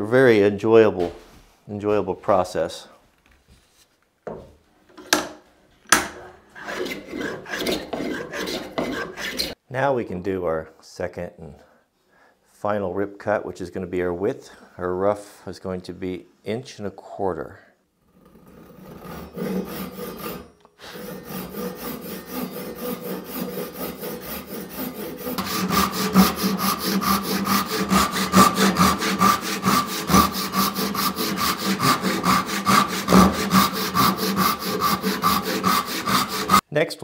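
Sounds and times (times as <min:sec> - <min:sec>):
handsaw cutting wood: 0:06.6 - 0:09.6, 0:18.1 - 0:36.6.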